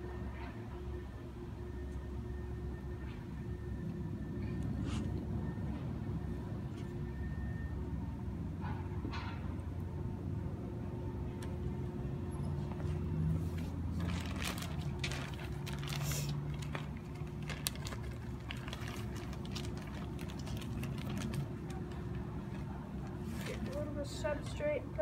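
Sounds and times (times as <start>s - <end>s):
low machine hum: 0.0s - 25.0s
plastic bag rustling: 13.6s - 24.2s.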